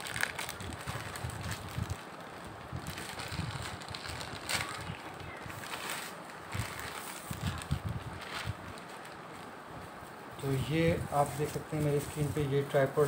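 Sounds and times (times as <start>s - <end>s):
sharp crinkles: 0.0s - 9.6s
parcel wrapper rustling: 0.0s - 12.9s.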